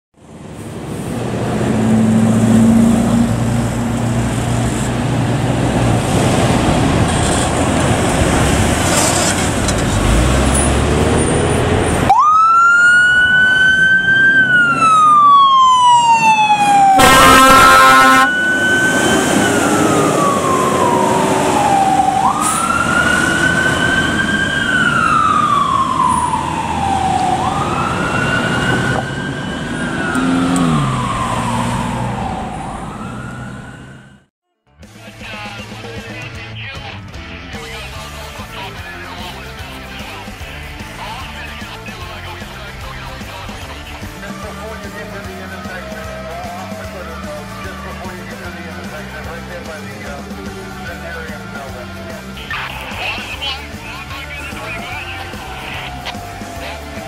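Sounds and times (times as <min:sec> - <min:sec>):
fire engine rumbling: 0:00.2 - 0:34.3, 0:37.6 - 0:57.0
siren wailing: 0:12.0 - 0:34.3, 0:44.0 - 0:48.9, 0:50.1 - 0:57.0
air horn blast: 0:16.8 - 0:19.4.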